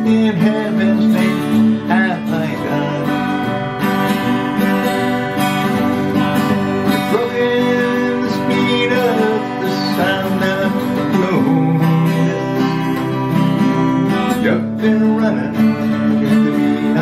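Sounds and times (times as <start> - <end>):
acoustic guitar strummed: 0.0 - 17.0.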